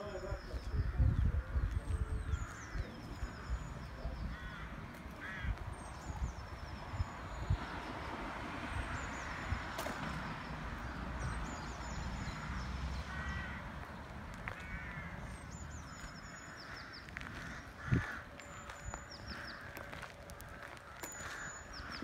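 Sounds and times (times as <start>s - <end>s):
songbird singing: 0.0s - 22.0s
wind rumble on microphone: 0.1s - 12.3s, 13.6s - 20.9s
crows cawing: 2.3s - 5.6s, 12.2s - 22.0s.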